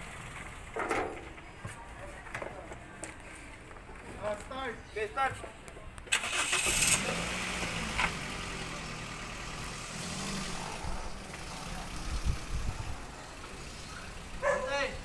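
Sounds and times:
car engine idling: 0.0 - 1.3, 6.1 - 15.0.

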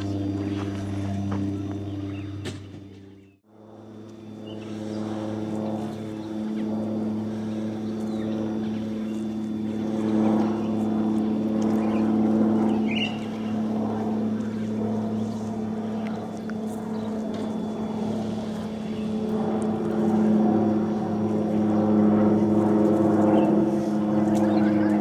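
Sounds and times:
motor humming: 0.0 - 25.0.

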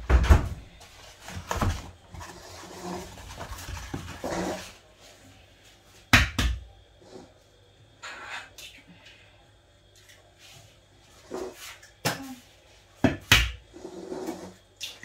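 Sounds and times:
rustling and scuffing: 0.6 - 6.1.

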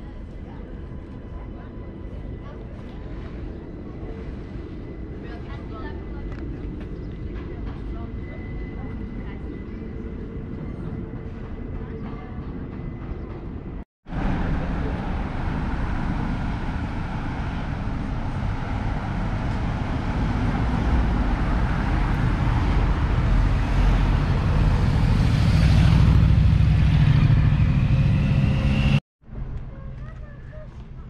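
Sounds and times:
vehicle engine and road noise: 14.1 - 31.0.

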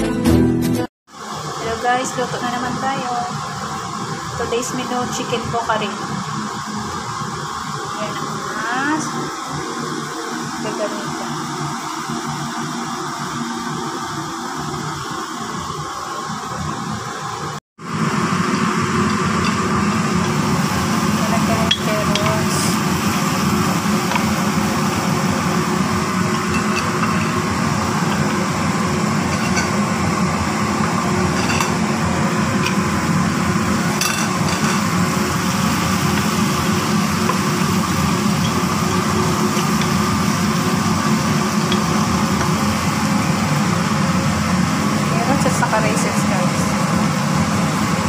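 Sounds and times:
food frying in oil: 1.1 - 48.0
steady mechanical drone: 1.1 - 48.0.

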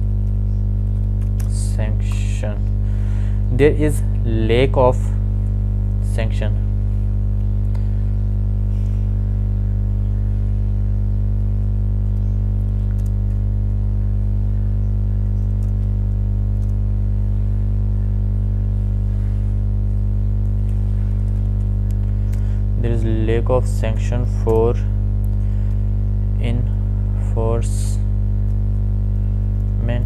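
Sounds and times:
loud electrical hum: 0.0 - 30.0
keyboard keys clicking: 0.2 - 1.5, 12.0 - 13.4, 15.3 - 15.9, 16.6 - 16.8.

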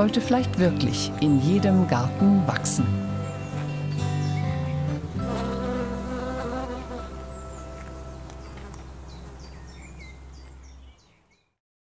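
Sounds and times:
soft music chord: 0.0 - 10.6
insect buzzing: 4.4 - 10.6
small bird chirping: 6.9 - 11.6.

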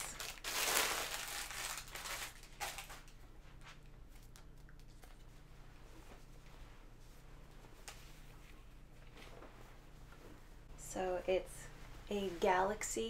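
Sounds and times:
plastic wrapping crackling: 0.0 - 3.1.

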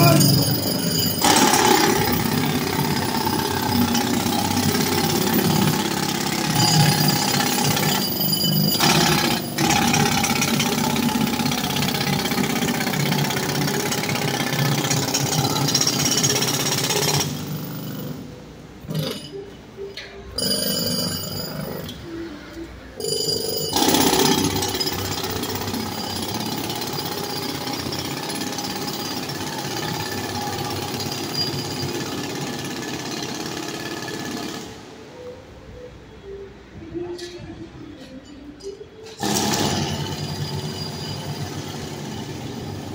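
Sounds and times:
jackhammer hammering: 0.0 - 18.2, 23.0 - 34.9, 39.2 - 42.9.

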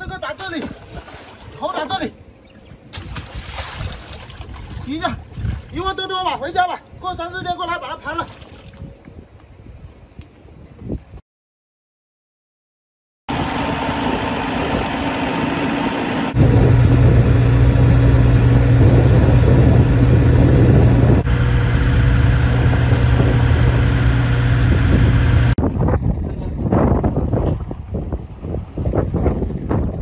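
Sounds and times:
boat engine humming: 13.3 - 25.6.

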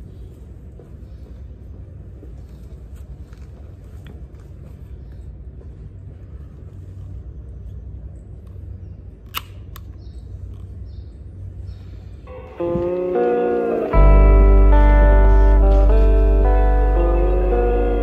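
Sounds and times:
low background rumble: 0.0 - 18.0.

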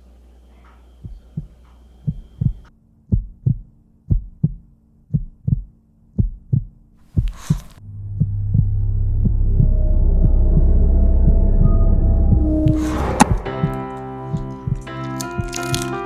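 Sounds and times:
heartbeat thumps: 1.0 - 15.5.

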